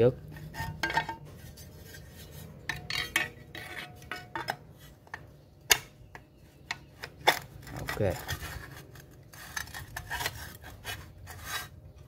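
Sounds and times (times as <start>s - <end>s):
metal parts clinking and scraping: 1.9s - 5.2s.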